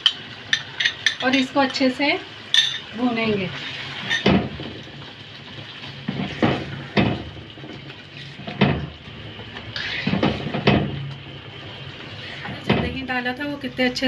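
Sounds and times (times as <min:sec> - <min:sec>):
low sizzle: 0:00.0 - 0:14.0
spatula scraping a pan: 0:09.8 - 0:10.6.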